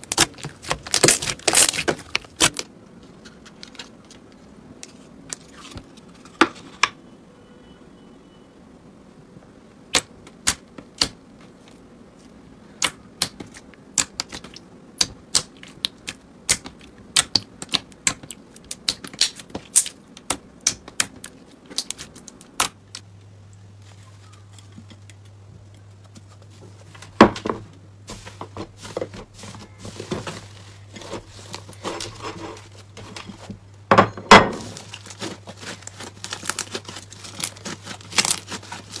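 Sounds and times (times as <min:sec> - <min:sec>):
slime squishing: 0:00.0 - 0:04.1, 0:09.9 - 0:23.1, 0:34.5 - 0:39.0
low steady hum: 0:00.0 - 0:39.0
slime clicking and popping: 0:12.8 - 0:22.8.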